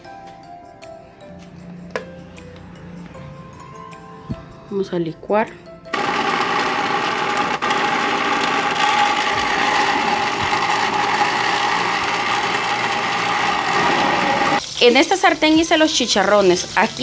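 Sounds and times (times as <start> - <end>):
blender motor running: 5.9 - 14.6.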